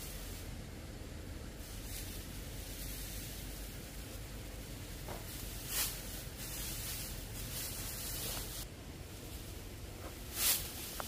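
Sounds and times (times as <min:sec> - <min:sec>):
dry rice stalks rustling: 0:00.0 - 0:11.0
steady low hiss: 0:00.0 - 0:11.0
straw swishes: 0:05.0 - 0:08.7, 0:09.3 - 0:11.0.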